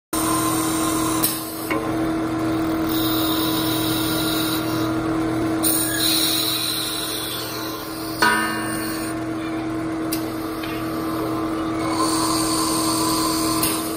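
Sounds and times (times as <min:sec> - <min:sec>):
lathe motor hum: 0:00.2 - 0:13.9
hiss of wood cutting: 0:11.8 - 0:13.9.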